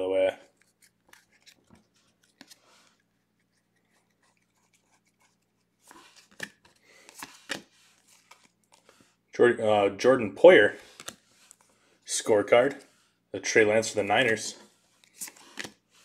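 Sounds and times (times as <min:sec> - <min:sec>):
trading cards flipped by hand: 0:00.5 - 0:09.1, 0:10.9 - 0:11.7, 0:14.2 - 0:16.0.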